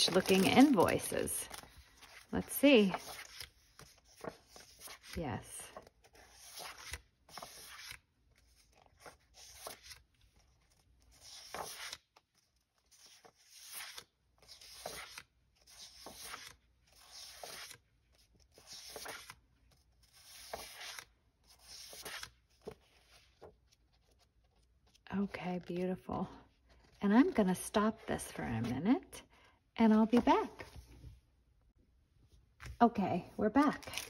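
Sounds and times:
paper rustling: 0.0 - 25.0.

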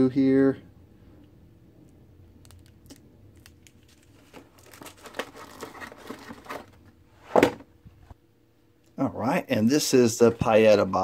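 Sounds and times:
plastic packaging crinkling: 2.4 - 6.8.

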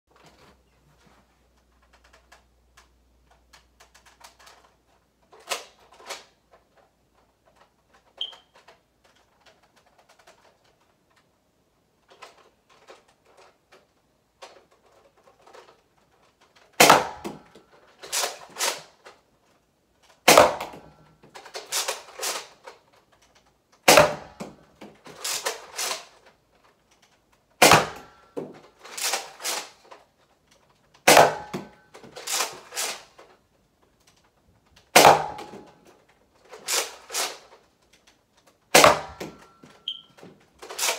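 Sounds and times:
toy blaster shot crack: 16.8 - 17.4, 20.2 - 20.8, 23.8 - 24.5, 27.6 - 28.1, 31.0 - 33.1, 34.9 - 35.6, 38.7 - 40.0, 40.6 - 40.9.

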